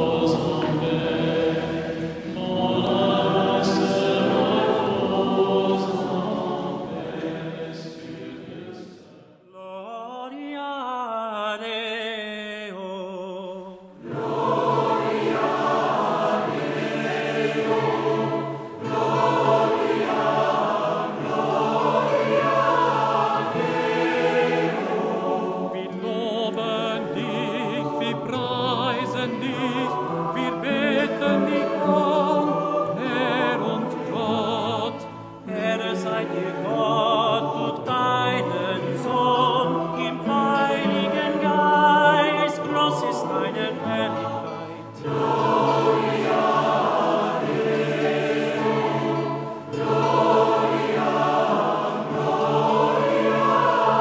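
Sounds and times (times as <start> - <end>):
choir singing: 0.0 - 10.7, 12.7 - 54.0
singers breathing: 44.6 - 44.9.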